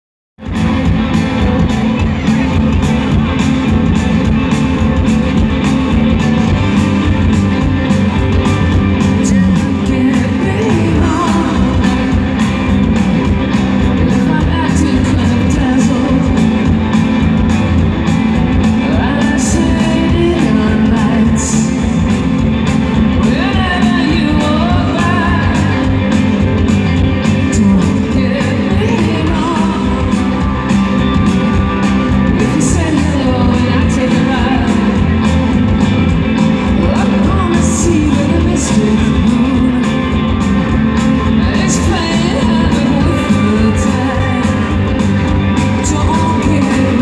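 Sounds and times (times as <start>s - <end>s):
drum beat: 0.4s - 28.0s
electric guitars: 0.4s - 47.0s
person singing: 1.2s - 17.4s, 18.5s - 47.0s.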